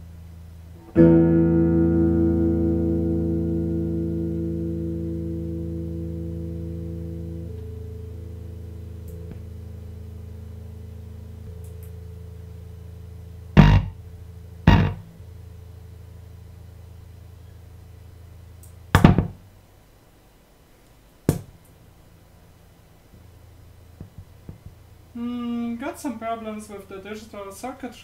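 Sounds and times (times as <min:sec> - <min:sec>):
electric guitar held note: 0:00.8 - 0:09.5, 0:13.5 - 0:14.0, 0:14.6 - 0:15.2
sharp amp bursts: 0:13.6 - 0:14.0, 0:14.7 - 0:15.1.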